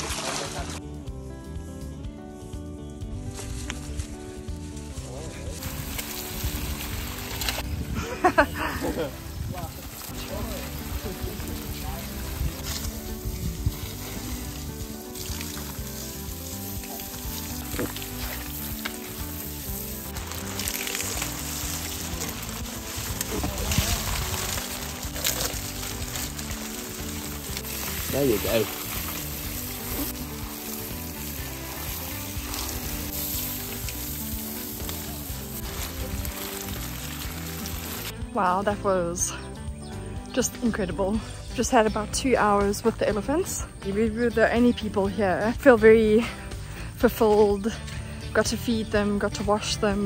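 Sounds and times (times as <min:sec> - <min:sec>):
hose spraying water: 0:00.0 - 0:00.8, 0:03.4 - 0:38.2
background music: 0:00.0 - 0:50.0.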